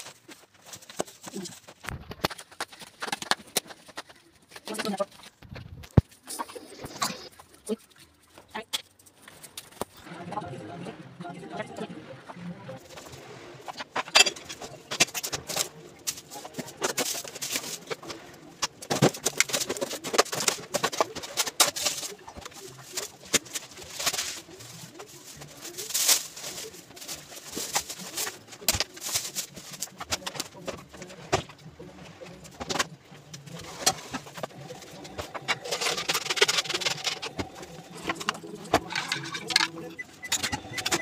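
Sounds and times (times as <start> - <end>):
plastic bags rustling: 0.0 - 8.2, 12.8 - 41.0
clatters and knocks of objects: 0.0 - 10.0, 12.9 - 41.0.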